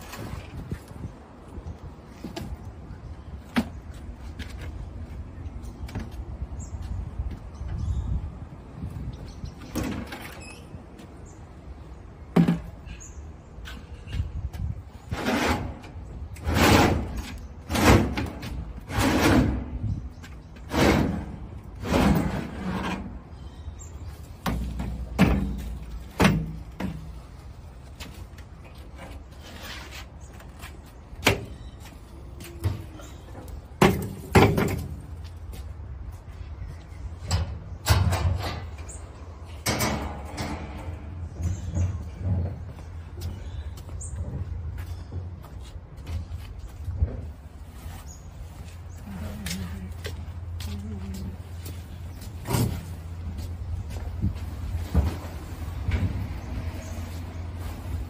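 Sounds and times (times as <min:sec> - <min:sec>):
plastic buckets scraping and clunking: 0:00.0 - 0:01.2, 0:12.3 - 0:35.4, 0:51.3 - 0:58.0.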